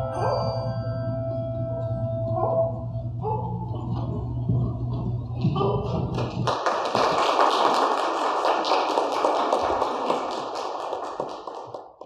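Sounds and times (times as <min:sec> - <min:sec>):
congregation applauding: 0:06.1 - 0:12.0.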